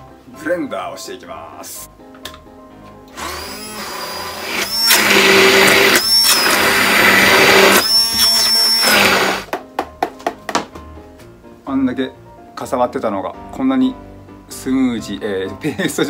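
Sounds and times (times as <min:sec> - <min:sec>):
immersion blender whining: 0:03.1 - 0:09.5.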